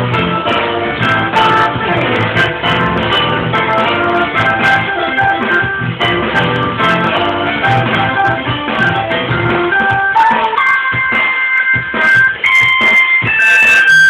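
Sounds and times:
electronic keyboard playing: 0.0 - 14.0.

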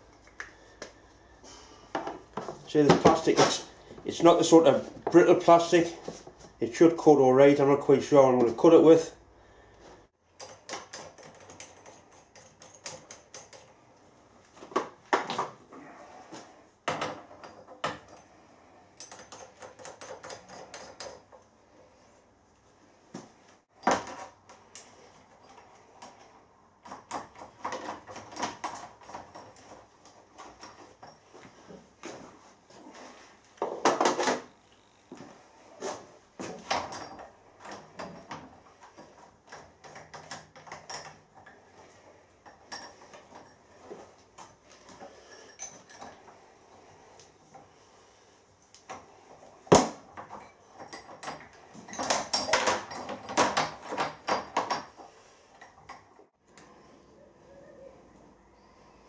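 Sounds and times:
metal clamps clinking and scraping: 10.4 - 14.0, 16.9 - 21.5, 36.4 - 47.8, 48.9 - 56.1.

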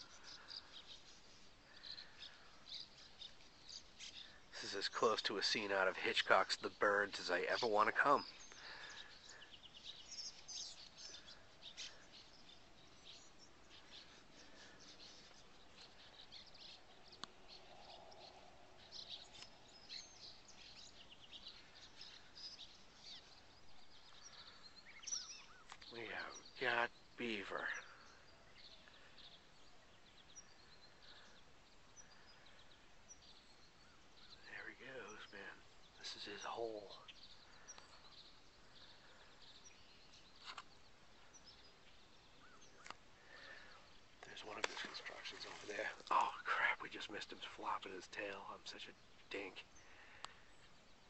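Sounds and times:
small birds chirping: 0.0 - 51.0.

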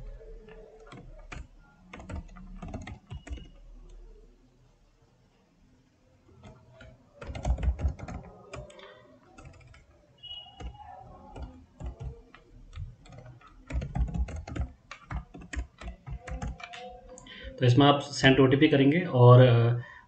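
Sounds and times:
computer keyboard typing: 0.0 - 4.1, 6.3 - 17.6.

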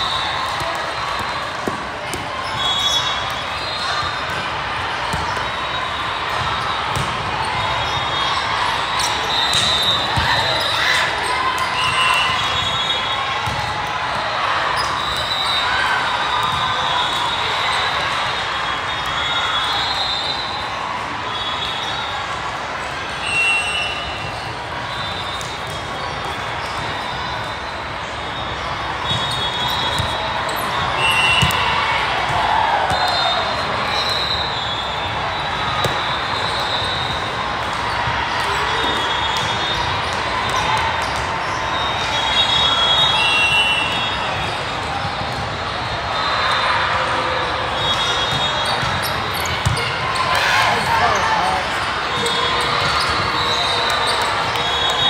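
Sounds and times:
crowd chatter: 0.0 - 55.0
din of voices in a hall: 50.3 - 52.2.

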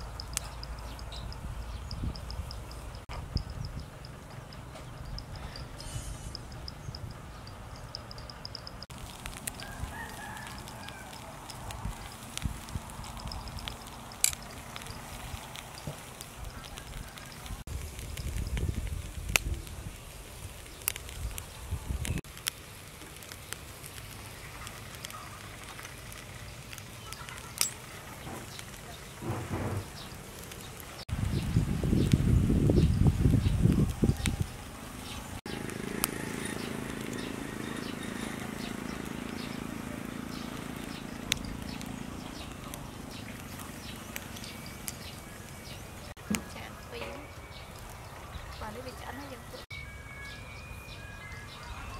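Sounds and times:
seafood sizzling on a grill: 4.6 - 49.6
crackles and pops: 8.0 - 46.6.

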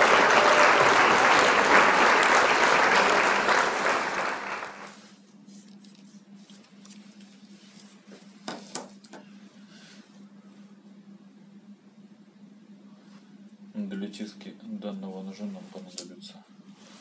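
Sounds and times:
applause: 0.0 - 5.0
faint steady hum: 0.0 - 17.0.

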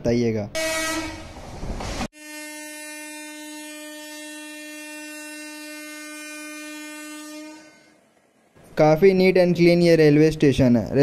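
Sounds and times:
locomotive horn long note: 0.6 - 1.4, 2.1 - 8.1.

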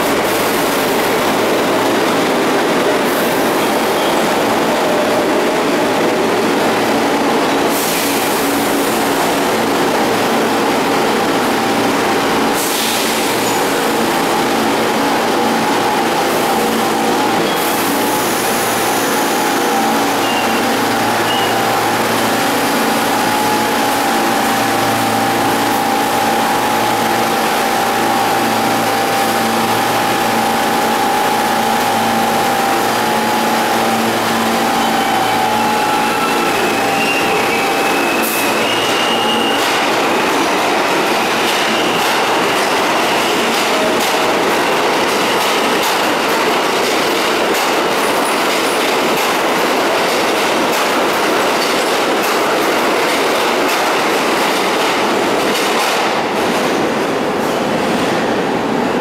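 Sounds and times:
subway train hum: 0.0 - 59.0
wheel squeals: 13.3 - 40.0.

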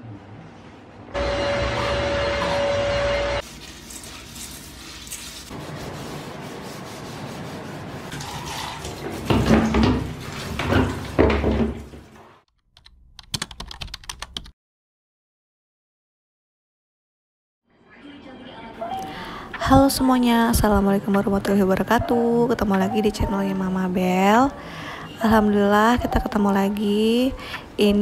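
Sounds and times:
water splashing in sink: 8.1 - 12.2.

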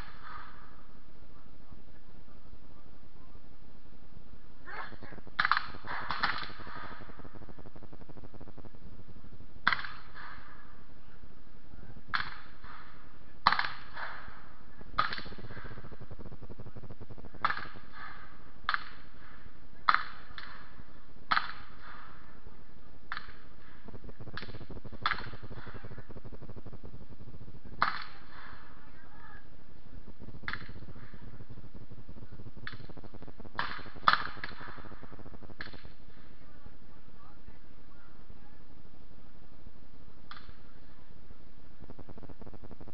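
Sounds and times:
steady hiss: 0.0 - 42.9
black-powder gunshots: 5.4 - 8.6, 30.0 - 36.2.

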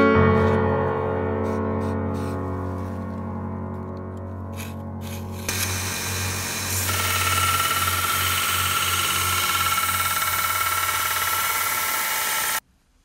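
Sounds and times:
belt sander motor hum: 4.6 - 12.6.

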